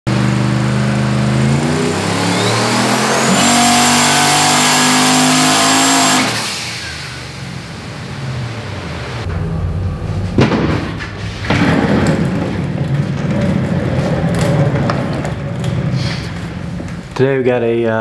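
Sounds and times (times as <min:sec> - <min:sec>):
engine under hard throttle: 0:00.1 - 0:09.6
turbo whine: 0:00.1 - 0:10.2.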